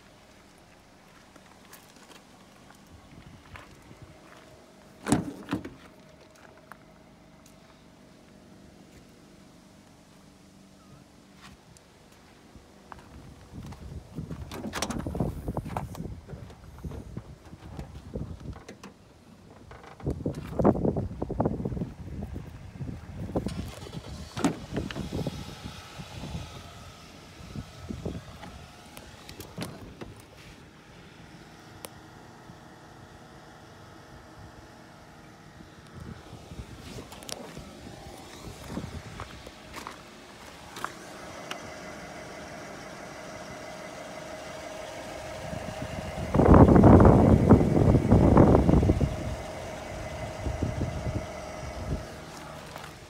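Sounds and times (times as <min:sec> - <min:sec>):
car engine idling: 0:00.0 - 0:53.0
faint engine whine: 0:00.0 - 0:53.0
rough exhaust noise: 0:11.2 - 0:53.0
wind rumbling on microphone: 0:13.0 - 0:18.8, 0:19.6 - 0:30.4, 0:35.9 - 0:39.8, 0:45.3 - 0:52.3.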